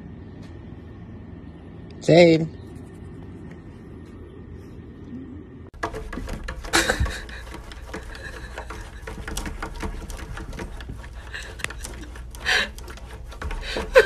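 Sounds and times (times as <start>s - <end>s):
knock on window: 5.8s - 11.0s
cat claws scratching on glass: 5.8s - 14.0s.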